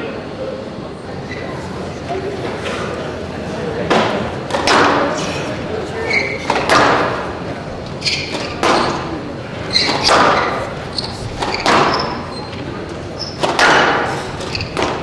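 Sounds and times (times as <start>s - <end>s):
squash ball hitting racquets and walls: 3.9s - 5.3s, 6.1s - 15.0s
shoe squeaks on wooden floor: 6.0s - 6.6s, 7.9s - 13.5s, 14.2s - 15.0s.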